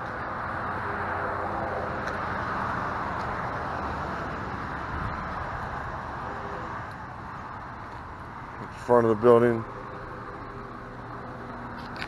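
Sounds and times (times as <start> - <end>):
passing vehicle tyre noise: 0.0 - 12.0.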